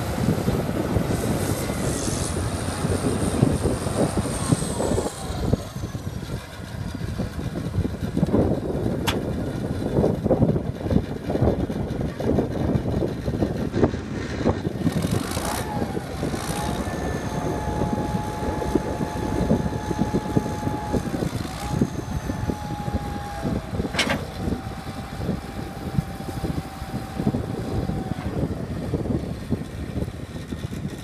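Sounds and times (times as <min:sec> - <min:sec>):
diesel engine running: 0:00.0 - 0:31.0
hydraulic whine: 0:14.9 - 0:29.2.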